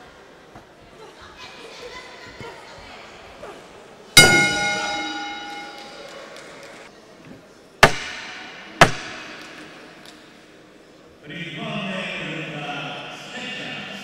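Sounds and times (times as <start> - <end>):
boxing bell ringing: 4.2 - 6.4.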